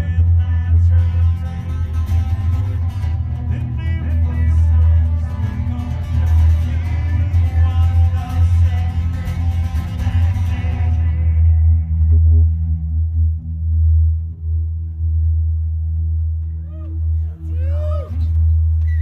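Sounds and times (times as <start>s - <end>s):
gritty noisy upper texture: 0.0s - 19.0s
low drone: 0.0s - 19.0s.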